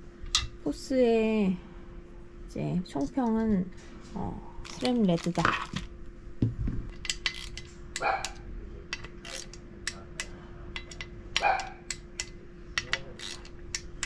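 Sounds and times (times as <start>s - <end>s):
faint steady hum: 0.0s - 14.0s
bark-like yelps: 8.0s - 8.4s, 11.4s - 11.8s.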